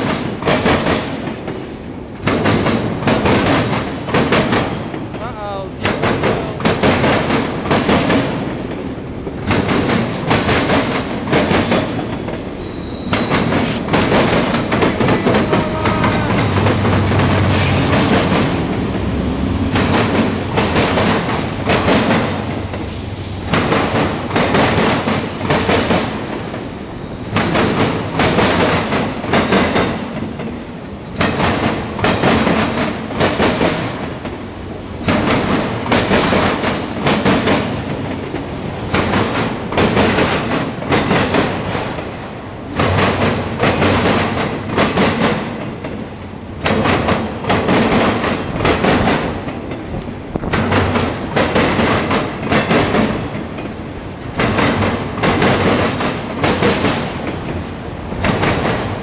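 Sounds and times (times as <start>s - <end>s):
train wheels clattering over rail joints: 0.0s - 5.2s, 5.8s - 59.0s
train rolling rumble: 0.0s - 59.0s
diesel locomotive engine running: 13.8s - 22.1s.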